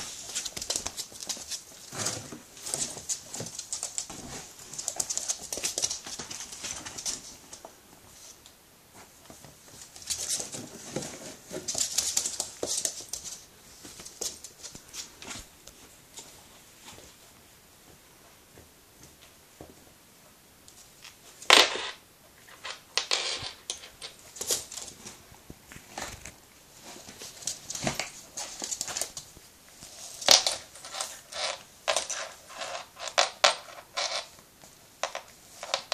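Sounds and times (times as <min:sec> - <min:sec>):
puppy playing with plush toy: 0:00.0 - 0:07.7, 0:09.2 - 0:15.5
puppy paws scrabbling on wooden floor: 0:00.0 - 0:08.4, 0:09.0 - 0:17.3, 0:22.6 - 0:35.9.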